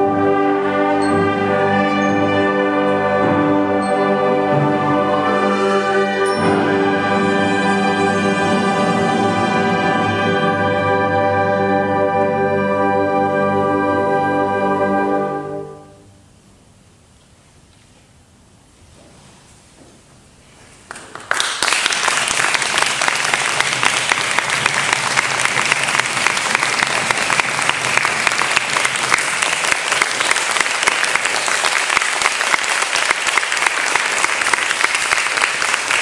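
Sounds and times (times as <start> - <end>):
audience applauding: 20.9 - 36.0.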